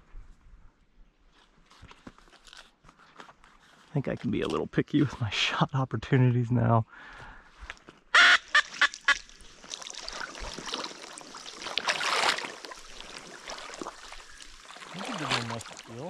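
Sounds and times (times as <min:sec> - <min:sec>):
loud duck quacks: 0:08.2 - 0:09.2
wading through water: 0:08.5 - 0:16.0.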